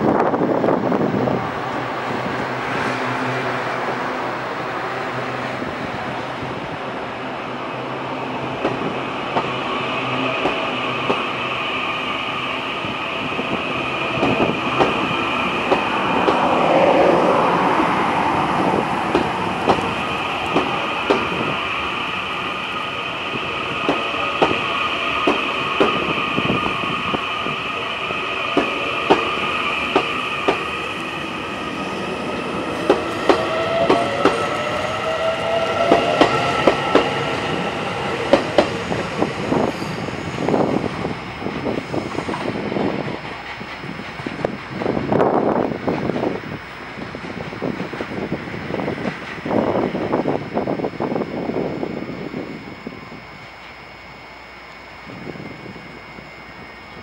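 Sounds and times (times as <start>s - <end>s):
electric train motor whine: 0.1s - 57.0s
train wheels clicking over rail joints: 10.4s - 11.3s, 14.0s - 17.1s, 18.5s - 21.4s, 23.8s - 26.1s, 28.5s - 30.7s, 35.4s - 39.9s.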